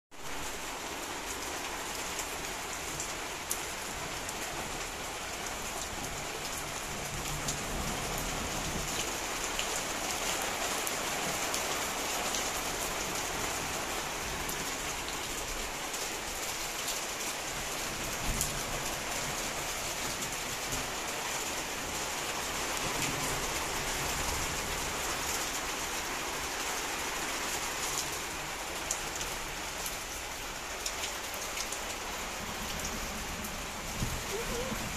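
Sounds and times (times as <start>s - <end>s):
rain hiss: 0.2s - 34.9s
raindrops ticking on a surface: 0.2s - 34.9s.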